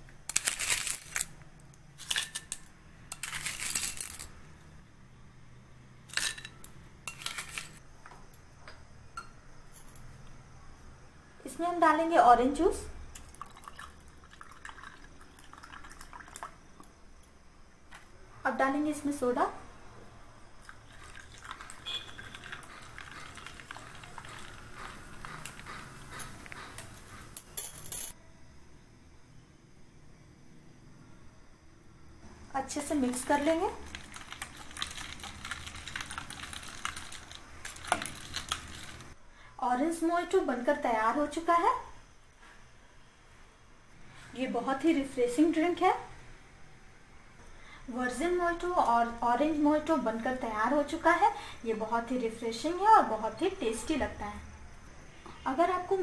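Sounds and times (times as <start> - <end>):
soda water fizzing: 13.2 - 16.6, 20.6 - 26.2, 33.0 - 39.2.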